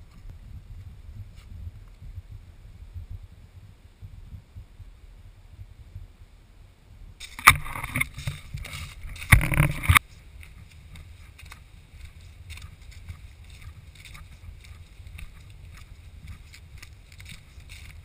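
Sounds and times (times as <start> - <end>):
low rumble: 0.0 - 18.0
camera handling noise: 7.2 - 10.0
footsteps on dry leaves: 7.2 - 18.0.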